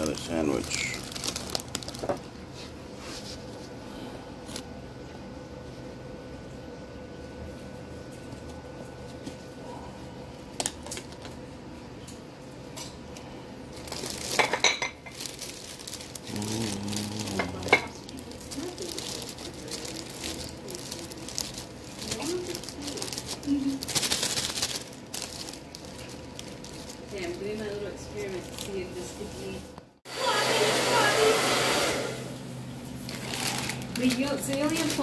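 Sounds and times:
plastic bag rustling: 0.0s - 3.6s, 13.7s - 29.7s, 33.0s - 35.0s.

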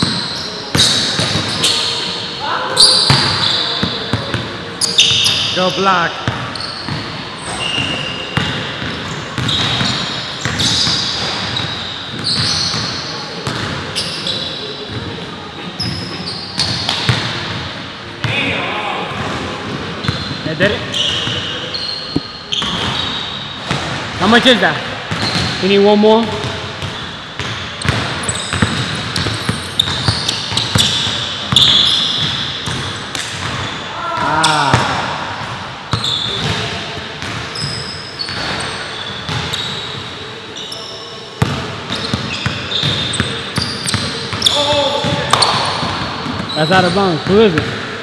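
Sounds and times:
basketball bouncing: 0.0s - 1.6s, 8.4s - 13.7s, 26.2s - 37.5s, 39.3s - 39.7s, 41.4s - 46.5s, 47.2s - 47.9s
sneakers squeaking: 0.0s - 48.0s.

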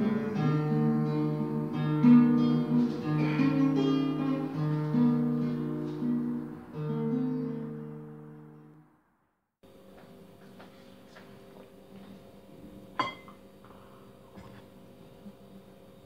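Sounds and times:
slow acoustic guitar music: 0.0s - 8.9s.

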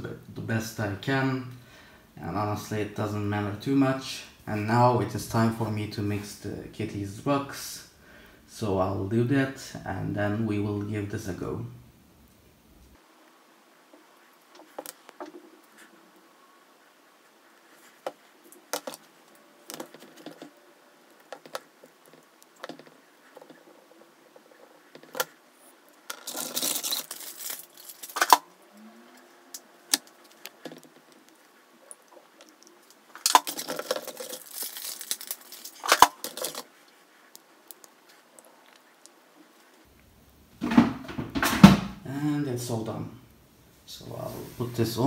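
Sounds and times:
plastic crinkling and rustling: 17.4s - 28.6s, 29.5s - 40.0s.

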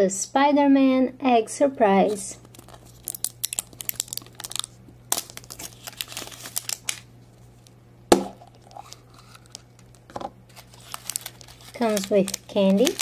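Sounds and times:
plastic wrapper crinkling: 2.4s - 7.8s, 8.4s - 13.0s
plastic egg knock: 8.1s - 8.4s.

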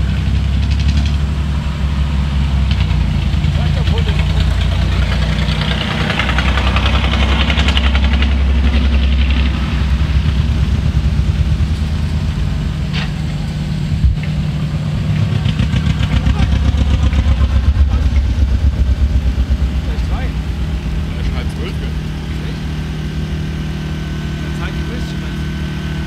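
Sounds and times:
rc truck motor rumble: 0.0s - 26.0s.

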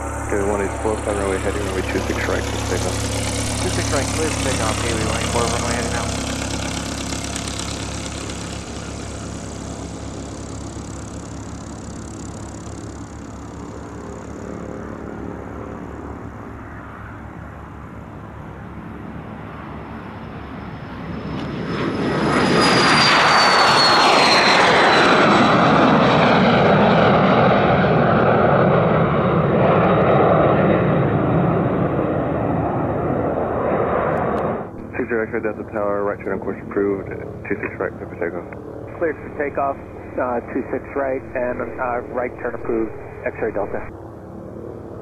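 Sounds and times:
high whine falling in pitch: 0.0s - 16.2s, 36.4s - 44.0s
jet engines passing: 0.0s - 45.0s.

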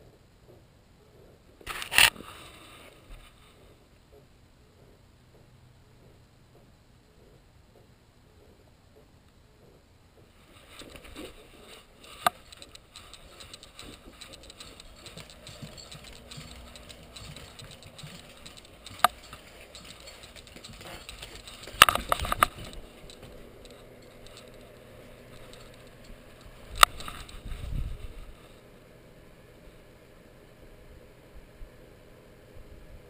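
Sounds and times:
camera handling rustling: 10.7s - 24.8s
sharp clicks: 11.9s - 27.4s.

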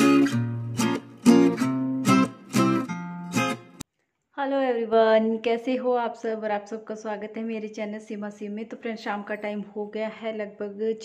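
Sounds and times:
acoustic guitar strumming chords: 0.0s - 3.8s.

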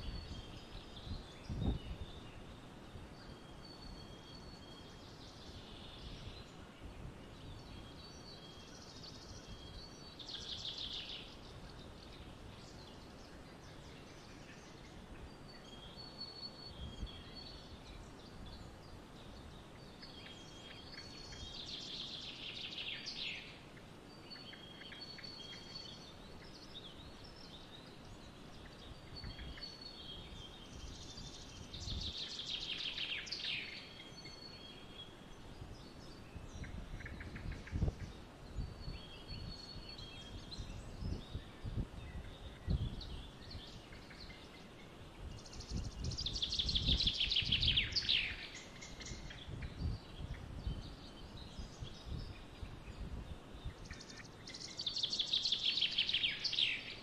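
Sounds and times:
outdoor background hiss: 0.0s - 57.0s.

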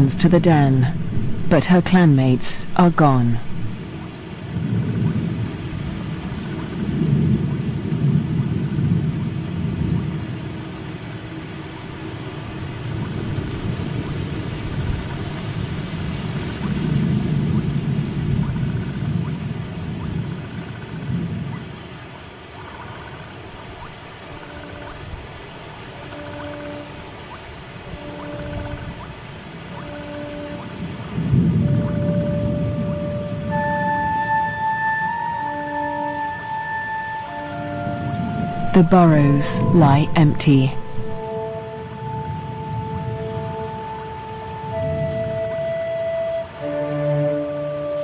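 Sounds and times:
thunder rumbling: 0.0s - 1.7s, 2.4s - 22.0s, 22.6s - 36.5s
heavy rain: 0.0s - 48.0s
faint sustained musical notes: 24.1s - 48.0s.

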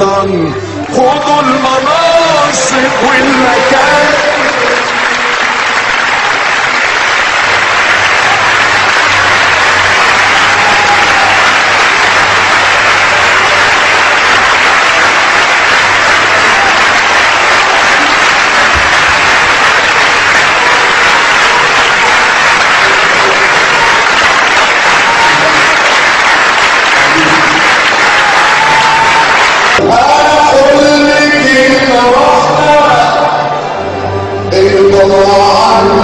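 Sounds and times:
audience applauding: 0.8s - 32.8s.

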